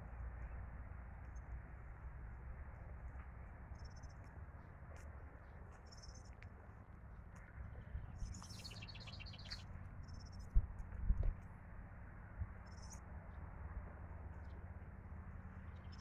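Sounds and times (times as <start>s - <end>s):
songbirds chirping: 0.0s - 11.7s, 12.6s - 16.0s.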